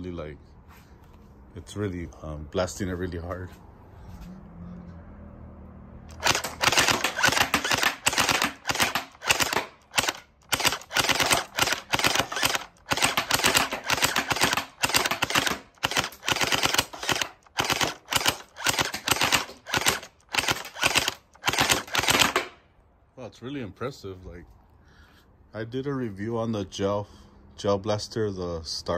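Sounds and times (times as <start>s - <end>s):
gel blaster rapid firing: 6.1s - 22.5s.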